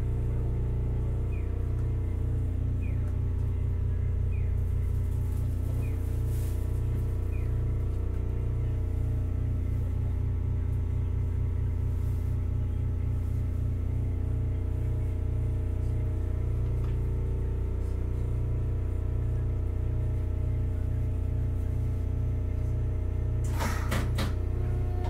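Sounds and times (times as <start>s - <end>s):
tram rumble with hum tones: 0.0s - 25.0s.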